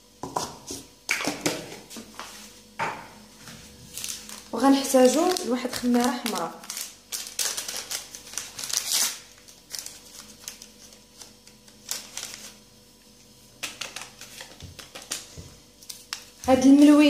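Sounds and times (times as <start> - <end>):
paper sachet crinkling: 3.9 - 17.0.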